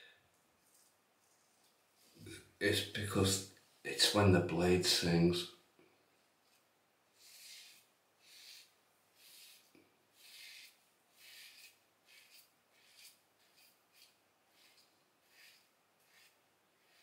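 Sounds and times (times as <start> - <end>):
razor scraping stubble: 7.2 - 17.0.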